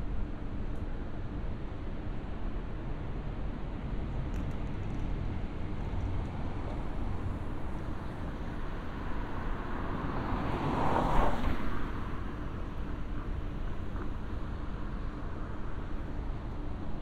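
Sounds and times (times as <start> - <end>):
low city rumble: 0.0 - 17.0
car passing by: 8.6 - 12.7.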